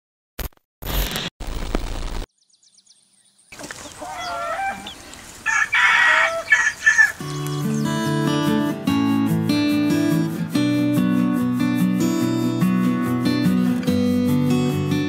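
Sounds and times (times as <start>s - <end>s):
chickens clucking and calling: 3.5s - 7.3s.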